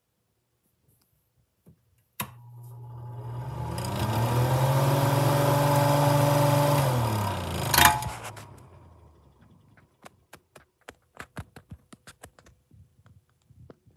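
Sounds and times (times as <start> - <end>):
exhaust fan motor hum: 2.2 - 9.7
fan switch click: 7.7 - 8.3.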